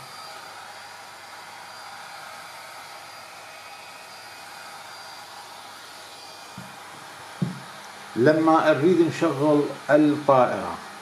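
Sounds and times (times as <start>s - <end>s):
faint high whine: 0.0s - 11.0s
fan whooshing: 0.0s - 11.0s
soft low bump: 7.4s - 7.7s.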